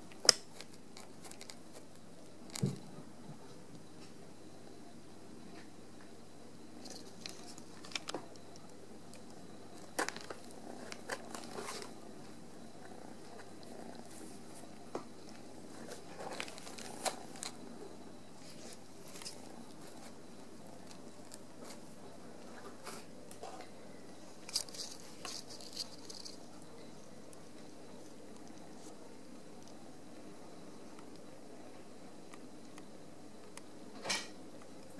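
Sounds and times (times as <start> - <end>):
plastic bags crinkling: 15.9 - 17.6, 24.4 - 26.5.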